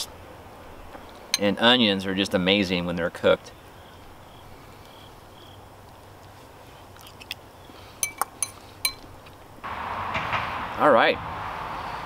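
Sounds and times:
fork clinking against bowl: 8.0s - 9.0s.

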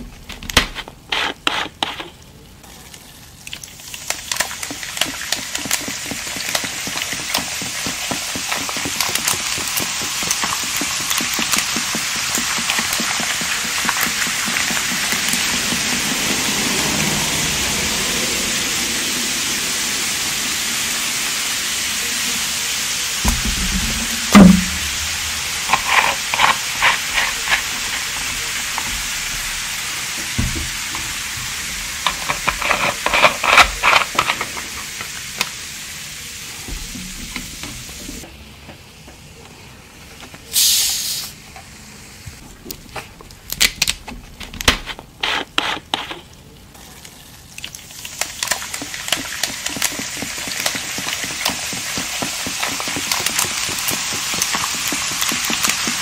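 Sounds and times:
soda fizzing: 1.0s - 38.3s, 40.4s - 43.9s, 44.8s - 56.0s
short sharp hiss: 40.5s - 41.4s.

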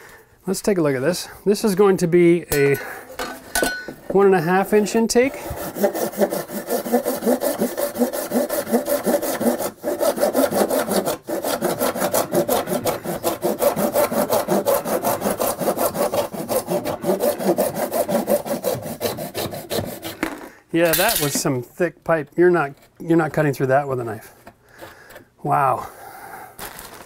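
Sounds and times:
hand saw cutting plastic: 5.1s - 21.5s.

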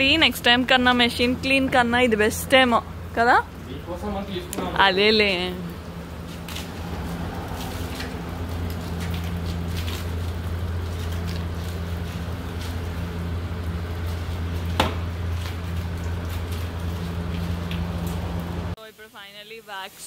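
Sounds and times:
pump humming: 1.2s - 18.8s
high-pressure water spray hissing: 5.2s - 13.1s.

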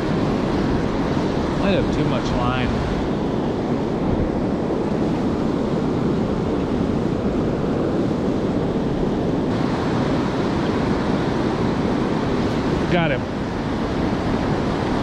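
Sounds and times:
river rapids rushing: 9.0s - 15.0s.

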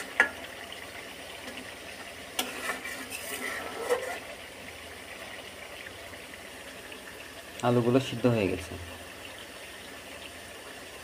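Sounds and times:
simmering curry hissing: 0.0s - 11.0s
spatula scraping metal pot: 2.3s - 4.4s.

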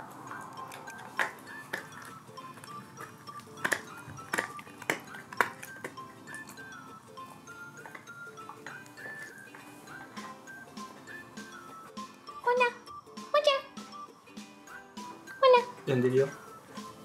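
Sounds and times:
light background music: 0.0s - 17.0s
dog gnawing hard chew: 0.2s - 9.7s.

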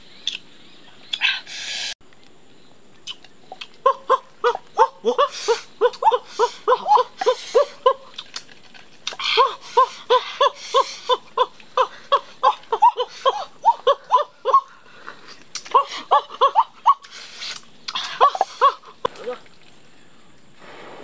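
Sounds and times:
squeaky sucking of snails: 17.0s - 18.0s.

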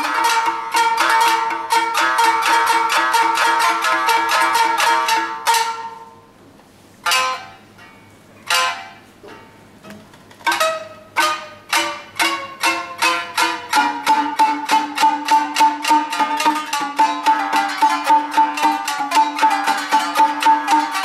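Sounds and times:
plucked shamisen notes: 0.0s - 21.0s.

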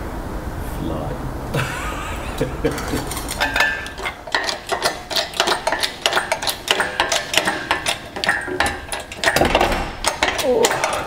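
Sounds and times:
engine crane chain clanking: 2.6s - 11.0s.

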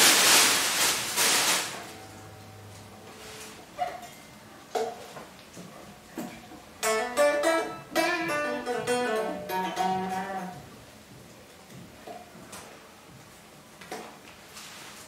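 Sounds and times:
electric guitar plucked notes: 1.7s - 3.8s, 6.8s - 10.7s
descending guitar run: 6.8s - 10.6s.

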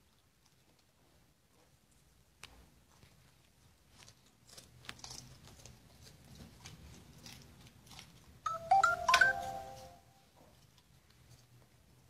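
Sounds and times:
dog chewing lettuce: 3.8s - 8.4s
electronic chime: 8.5s - 10.0s.

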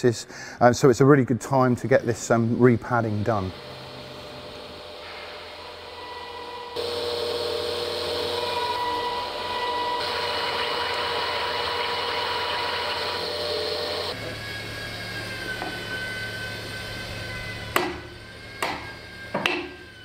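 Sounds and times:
milling machine whine: 2.0s - 20.0s.

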